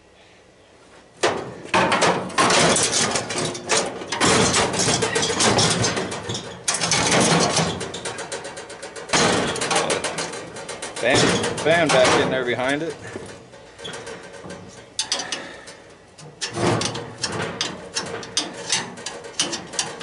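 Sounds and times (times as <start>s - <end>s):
sheet metal rattling and clanking: 1.2s - 20.0s.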